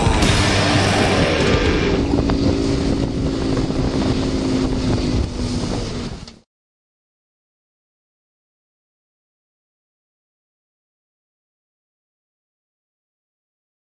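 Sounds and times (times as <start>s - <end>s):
outboard motor droning: 0.0s - 6.4s
wind noise on microphone: 0.0s - 6.4s.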